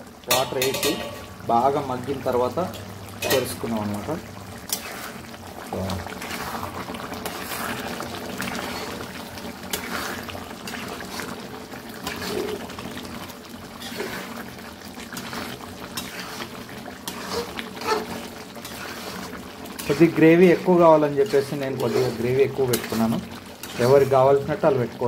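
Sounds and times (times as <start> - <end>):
curry bubbling: 0.0 - 25.0
spatula scraping pan: 4.7 - 5.2, 6.1 - 12.9, 13.8 - 24.5.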